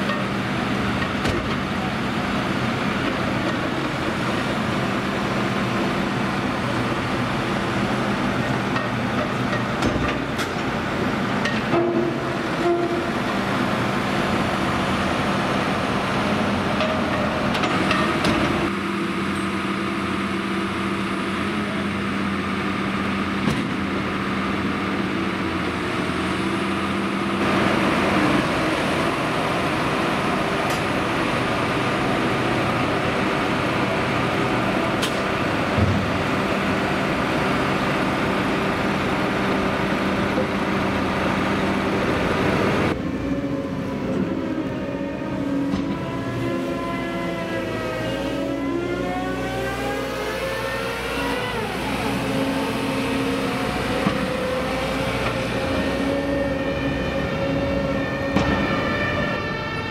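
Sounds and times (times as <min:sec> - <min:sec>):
heavy engine humming: 0:00.0 - 0:59.9.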